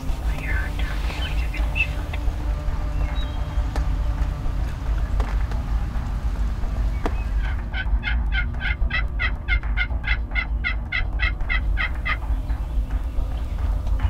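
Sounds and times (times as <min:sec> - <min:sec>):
steady low rumble: 0:00.0 - 0:14.0
turkey yelping: 0:06.8 - 0:12.4.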